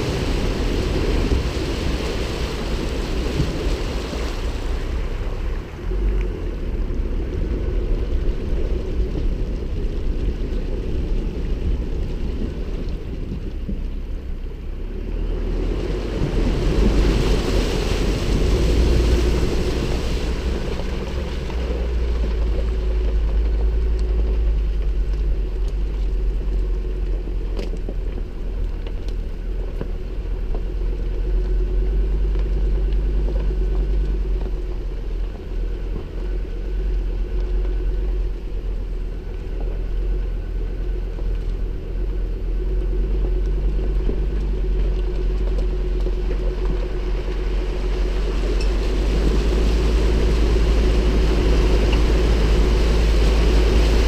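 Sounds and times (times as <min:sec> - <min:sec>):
truck engine rumble: 0:00.0 - 0:54.0
tyres driving on gravel: 0:00.0 - 0:54.0
water rushing and splashing: 0:00.0 - 0:54.0.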